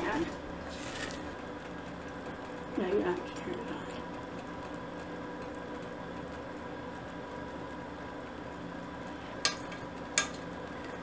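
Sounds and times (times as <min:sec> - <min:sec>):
spatula stirring: 0:00.0 - 0:02.6, 0:09.0 - 0:11.0
faint steady hum: 0:00.0 - 0:11.0
mixture bubbling in saucepan: 0:00.0 - 0:11.0.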